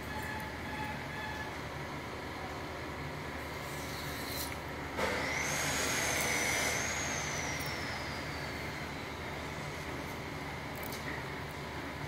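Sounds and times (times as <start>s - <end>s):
loud hiss: 5.0s - 8.8s
thin high whistle sliding down: 5.1s - 9.1s.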